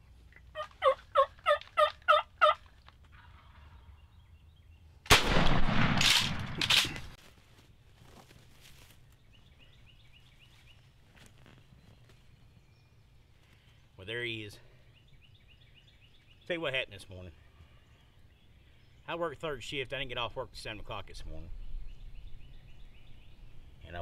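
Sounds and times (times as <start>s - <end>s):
turkey yelps: 0.5s - 2.6s
shotgun blast: 5.1s - 7.1s.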